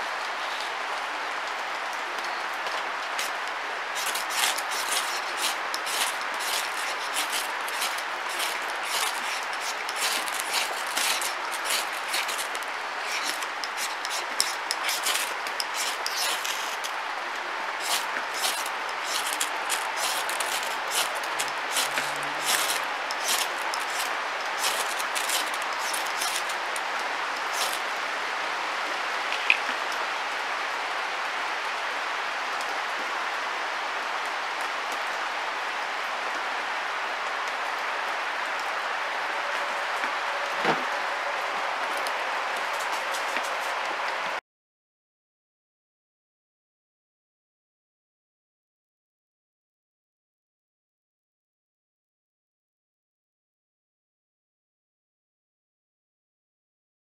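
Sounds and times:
striker scraping ferro rod: 0:04.0 - 0:17.0, 0:17.8 - 0:26.9, 0:27.5 - 0:27.9.

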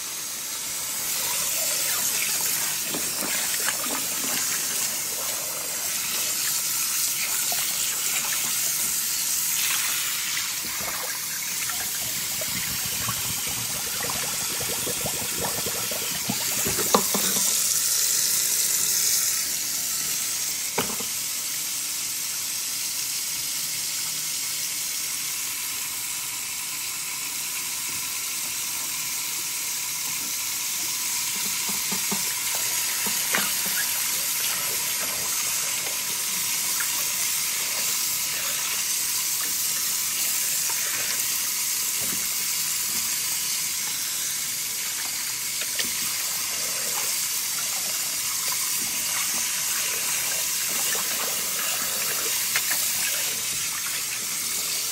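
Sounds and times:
tap water splashing on fish: 0:12.3 - 0:17.6, 0:20.8 - 0:21.1.

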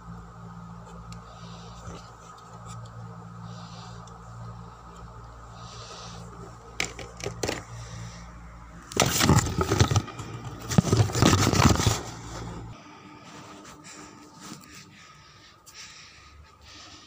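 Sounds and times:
steady low hum: 0:00.0 - 0:17.0
microphone handling rubbing and scraping: 0:08.9 - 0:12.8.

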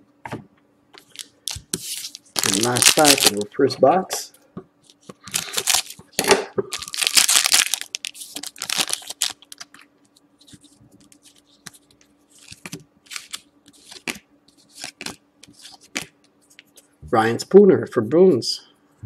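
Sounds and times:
faint steady hum: 0:00.0 - 0:19.0
cards being handled: 0:01.0 - 0:03.5, 0:06.9 - 0:16.9
wrapper crinkling: 0:01.0 - 0:03.5, 0:04.9 - 0:16.1
scissors cutting foil wrapper: 0:02.4 - 0:03.4, 0:05.2 - 0:06.0, 0:06.8 - 0:09.7.

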